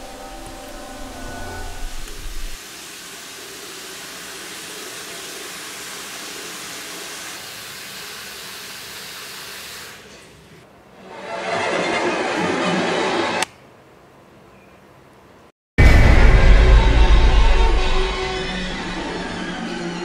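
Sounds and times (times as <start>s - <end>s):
water running into a sink: 2.0s - 10.0s.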